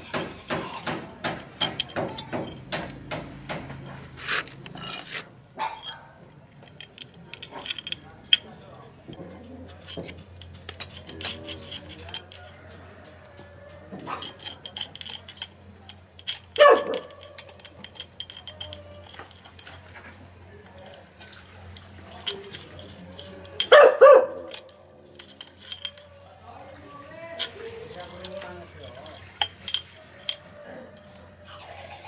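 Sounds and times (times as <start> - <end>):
metal hook tool tapping: 0.1 - 3.8
metal chain clinking: 0.1 - 31.6.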